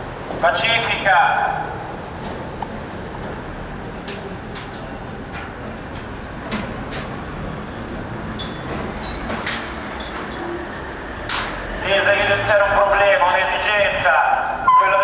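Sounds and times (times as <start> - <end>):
street traffic rumble: 0.0 - 15.0
short high squeal: 4.8 - 6.5.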